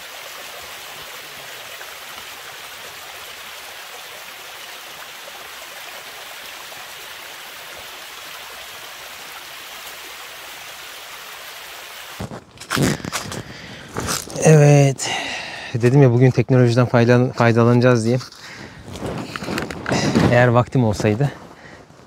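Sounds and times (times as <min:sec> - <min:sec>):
stream water rushing: 0:00.0 - 0:15.7.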